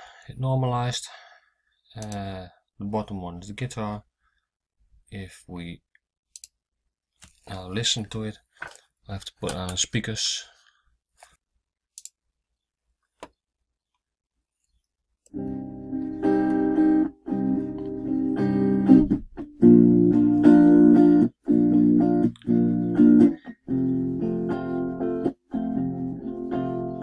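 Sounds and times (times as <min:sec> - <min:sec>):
strummed guitar chords: 0:15.3 - 0:27.0.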